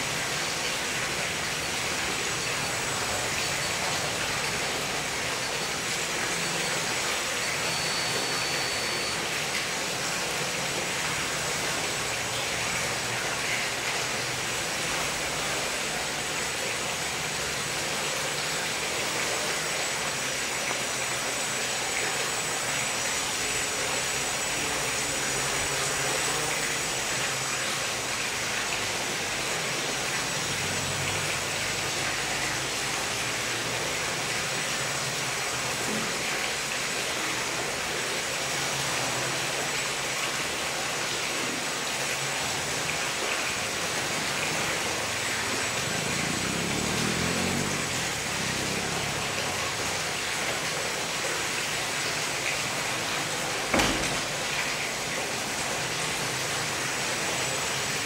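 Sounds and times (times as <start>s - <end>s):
quadcopter propellers whirring: 45.6s - 49.3s.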